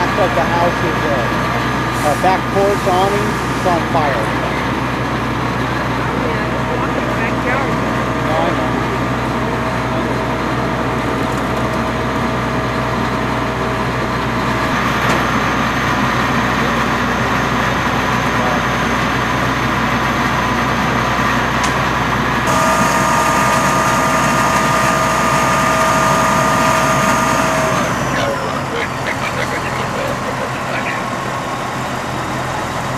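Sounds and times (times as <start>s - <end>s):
thin steady whine: 0.0s - 11.0s, 22.2s - 32.9s
fire engine pump drone: 0.0s - 32.9s.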